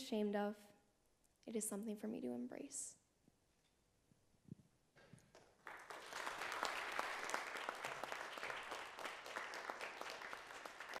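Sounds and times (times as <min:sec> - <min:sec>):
audience applause: 0:05.6 - 0:11.0.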